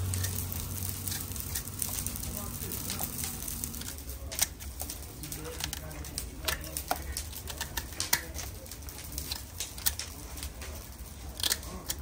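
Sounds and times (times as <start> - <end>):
low steady hum: 0.0 - 4.9.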